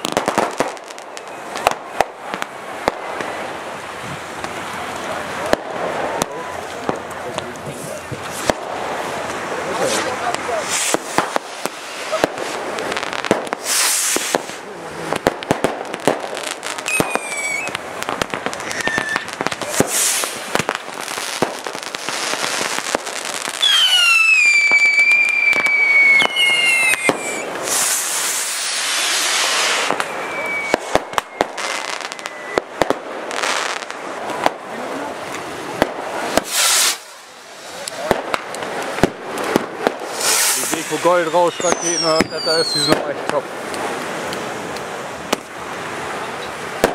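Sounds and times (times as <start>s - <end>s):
fireworks bangs and crackles: 0.0s - 46.9s
falling firework whistles: 9.8s - 12.6s, 13.3s - 14.6s, 16.7s - 17.8s, 18.5s - 22.9s, 23.5s - 33.9s, 36.3s - 37.8s, 40.0s - 43.1s.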